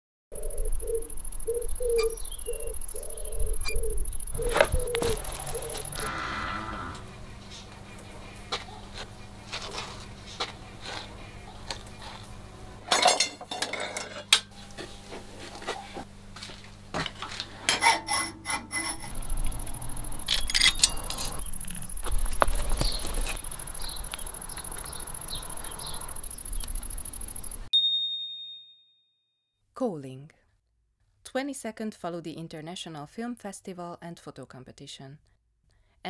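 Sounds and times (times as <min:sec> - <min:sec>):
high-pitched whine: 0:00.4 - 0:08.6, 0:18.1 - 0:27.7
metal objects clinking and rattling: 0:20.2 - 0:21.8.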